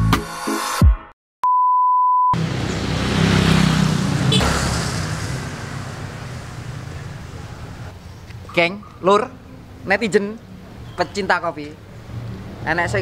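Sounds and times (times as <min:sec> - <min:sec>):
music: 0:00.0 - 0:01.1
outdoor street noise: 0:02.4 - 0:13.0.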